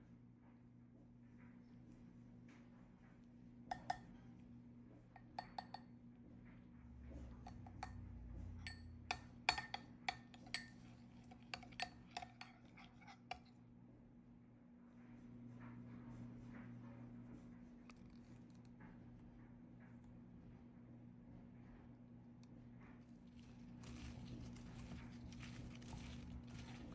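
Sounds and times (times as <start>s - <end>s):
spoon clinking glass bowl: 3.7s - 4.1s, 5.2s - 5.9s, 8.7s - 13.5s.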